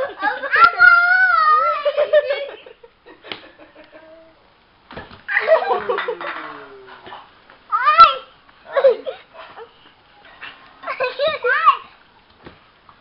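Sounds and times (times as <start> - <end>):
child laughing: 0.0 - 2.8, 3.4 - 4.4, 5.3 - 6.9, 7.8 - 9.7.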